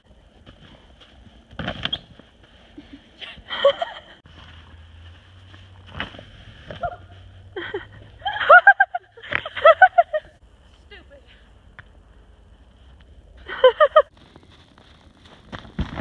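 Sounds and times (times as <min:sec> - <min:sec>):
footsteps in snow: 0:14.1 - 0:16.0.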